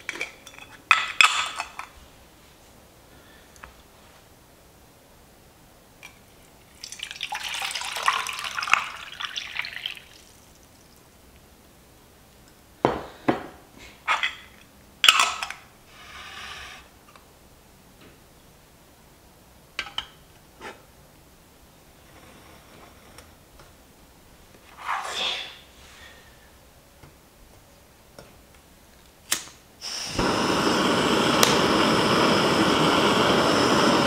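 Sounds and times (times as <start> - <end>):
water pouring into metal pot: 6.7 - 11.0
lighter clicks: 29.3 - 33.9.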